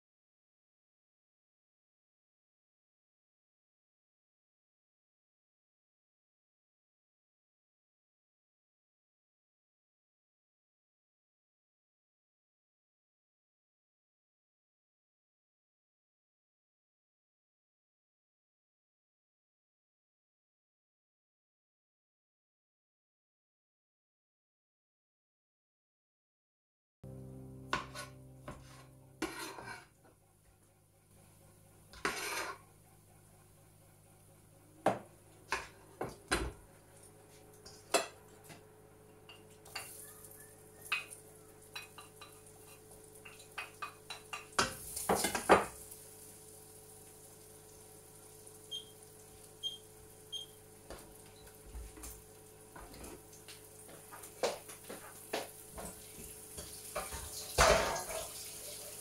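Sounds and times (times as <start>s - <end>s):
kitchenware clattering: 40.8s - 45.8s, 56.6s - 58.9s.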